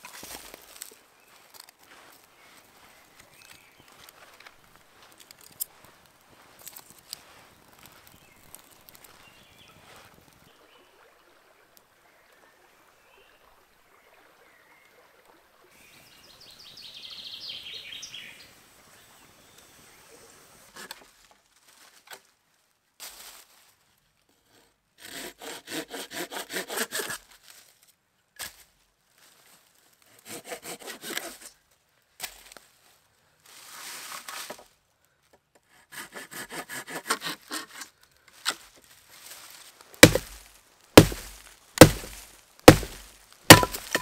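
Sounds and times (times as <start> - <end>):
hand saw cutting branch: 24.5 - 27.3, 30.1 - 31.6, 35.6 - 38.6, 40.0 - 44.0.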